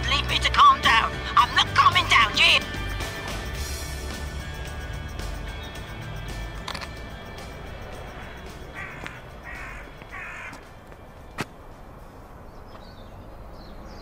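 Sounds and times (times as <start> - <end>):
crow cawing: 8.1 - 10.7.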